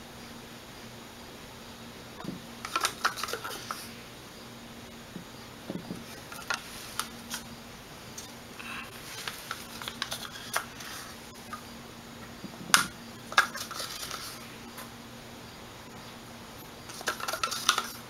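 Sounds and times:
plastic cups clicking and tapping: 2.2s - 3.9s, 5.7s - 7.4s, 8.9s - 11.6s, 12.5s - 14.4s, 16.9s - 18.0s.

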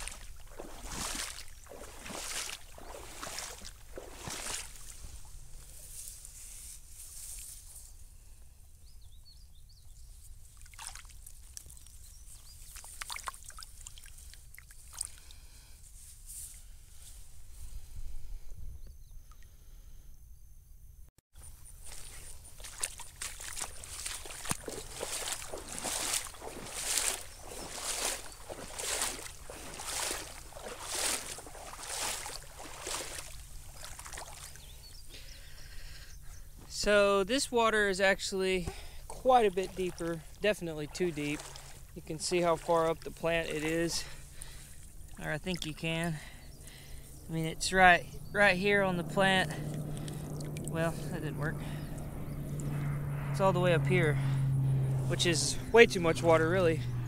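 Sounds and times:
hand splashing in shallow water: 0.0s - 5.0s, 10.6s - 11.9s, 12.5s - 15.1s, 21.8s - 34.6s, 39.5s - 43.7s
steady low rumble: 44.0s - 57.0s.

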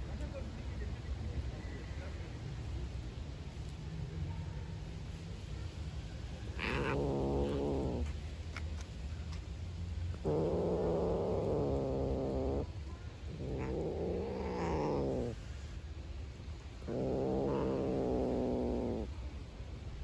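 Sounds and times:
cat growling: 6.5s - 8.2s, 10.1s - 15.7s, 16.5s - 19.2s.

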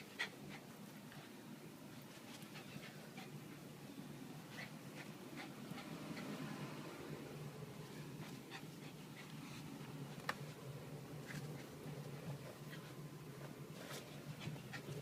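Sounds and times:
dog sniffing and breathing: 4.5s - 6.5s, 11.3s - 15.0s.

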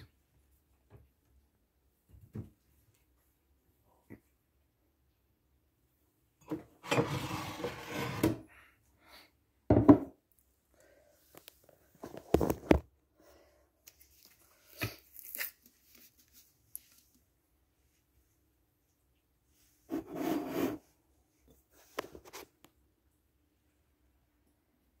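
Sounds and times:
rustling and scraping on counter: 6.4s - 8.5s, 11.3s - 12.9s, 19.6s - 22.7s.

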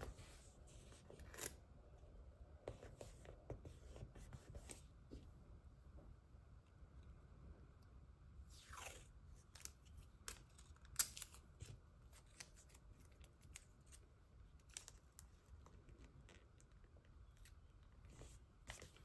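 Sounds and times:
tape tearing ticks and snaps: 9.6s - 11.4s.

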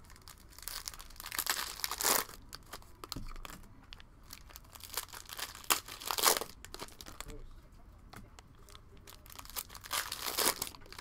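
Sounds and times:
cellophane wrapper tearing and crinkling: 0.0s - 7.4s, 8.7s - 11.0s
cellophane snap: 9.4s - 11.0s.

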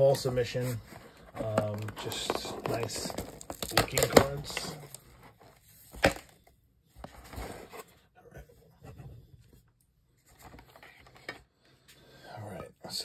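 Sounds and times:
cardboard and tape scraping: 0.6s - 6.3s.

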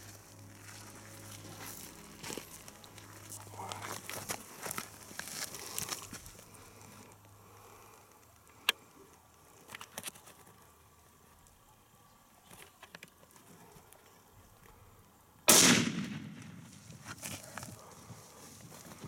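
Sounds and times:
faint clicks and rustles: 8.0s - 11.6s
rifle shot: 15.5s - 16.7s.

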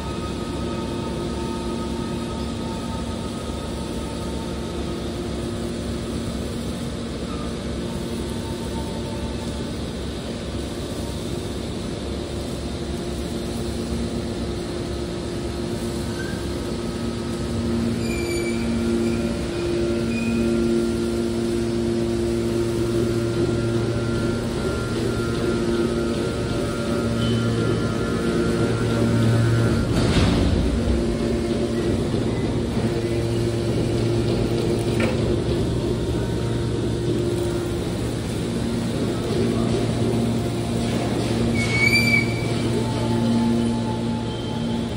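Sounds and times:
hydraulic machine hum: 0.0s - 44.9s
faint high whine: 15.3s - 35.2s.

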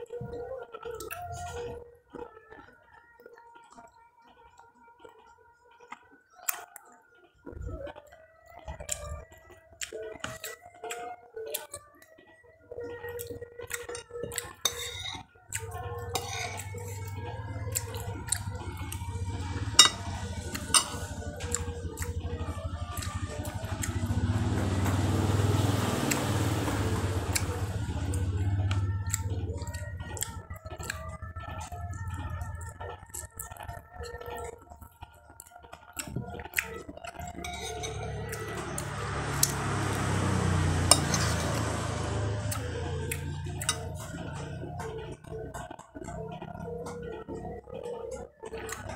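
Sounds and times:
spoon clinking on plate: 14.7s - 15.2s, 19.8s - 21.0s
low steady hum: 14.7s - 34.6s
plate and utensils clinking: 19.8s - 20.1s, 20.7s - 21.0s
chewing mouth sounds: 27.3s - 37.5s, 38.1s - 48.9s.

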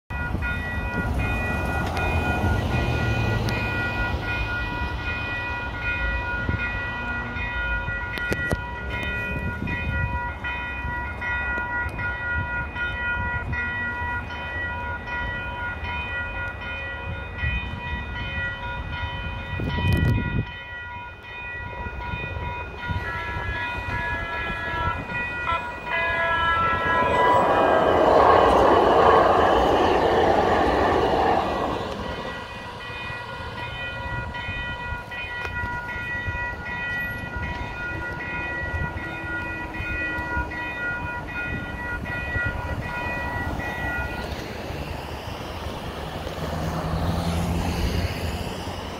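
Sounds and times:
light rail train rolling: 0.1s - 48.9s
railroad crossing bell ringing: 0.1s - 48.9s
road traffic rumbling: 0.3s - 6.2s, 22.7s - 35.6s, 36.2s - 48.9s
vehicle passing: 25.6s - 32.8s, 44.6s - 48.9s.

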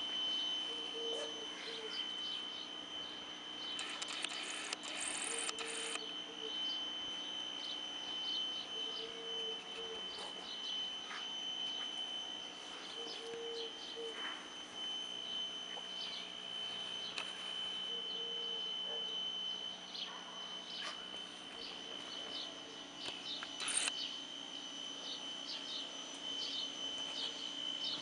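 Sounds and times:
steady high whine: 0.0s - 28.0s
low hooting call: 0.3s - 3.2s, 12.7s - 22.9s.

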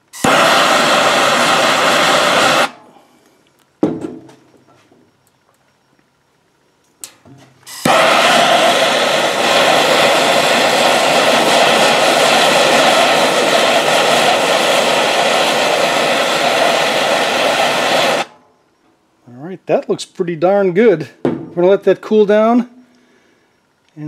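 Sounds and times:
gas torch flame hissing: 0.0s - 3.4s, 7.0s - 18.4s
torch click: 0.1s - 3.6s, 7.0s - 18.4s.

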